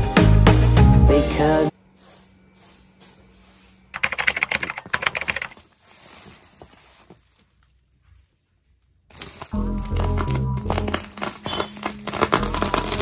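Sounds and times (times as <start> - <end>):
plastic rustling: 4.6 - 13.0
bubble wrap crackling: 4.9 - 13.0.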